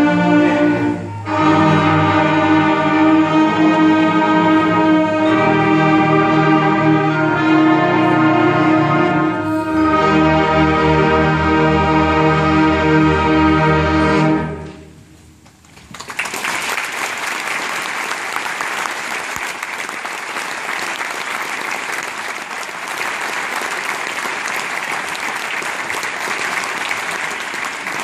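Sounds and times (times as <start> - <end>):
concert band chord: 0.0 - 14.9
audience applause: 15.8 - 28.0.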